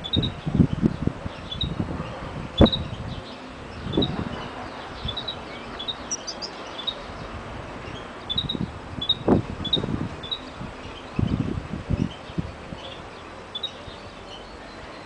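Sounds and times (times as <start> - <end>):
bird chirping: 0.0 - 1.8, 2.6 - 15.0
bird twittering: 1.4 - 1.8, 2.6 - 3.0, 3.8 - 7.1, 7.9 - 11.4, 12.8 - 14.6.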